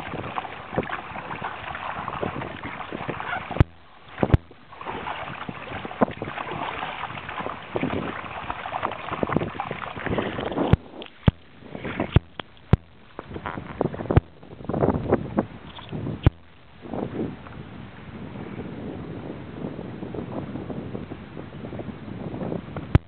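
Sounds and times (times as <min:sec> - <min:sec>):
water splashing against kayak hull: 0:00.0 - 0:18.0.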